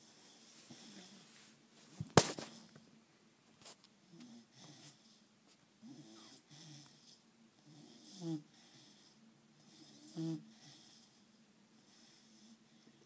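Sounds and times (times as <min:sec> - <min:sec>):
dog snoring: 0:05.8 - 0:11.2.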